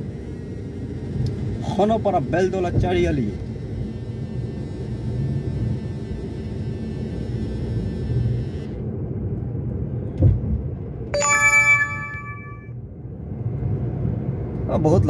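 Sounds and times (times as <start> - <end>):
car cabin road rumble: 8.8 - 11.0
bright ringing tone: 11.2 - 12.7.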